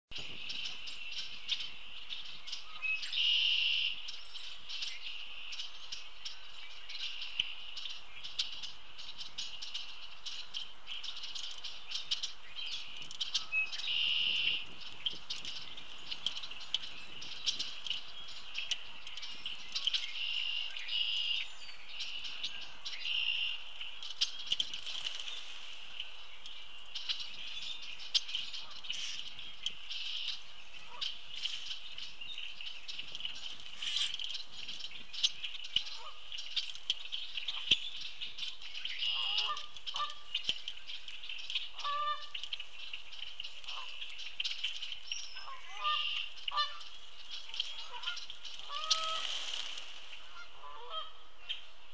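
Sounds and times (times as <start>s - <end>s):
birds clicky calls and chatter: 0.1s - 51.9s
low honk-like bird calls: 41.7s - 42.4s, 45.4s - 46.9s, 47.7s - 49.3s, 50.2s - 51.3s.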